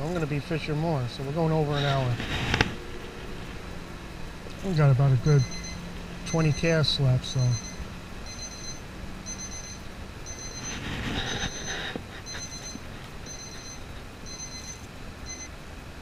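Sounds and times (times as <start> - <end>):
two-tone electronic alarm beeping: 4.8 - 15.5.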